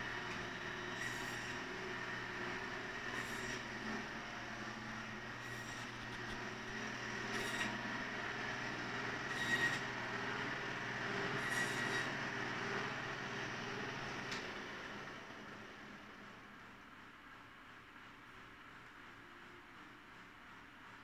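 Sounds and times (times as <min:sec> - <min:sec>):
band saw whining: 0:00.0 - 0:15.2.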